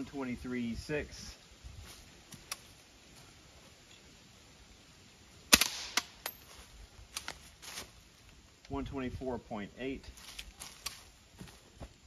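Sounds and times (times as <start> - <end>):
suppressed gunshot: 5.5 - 6.2.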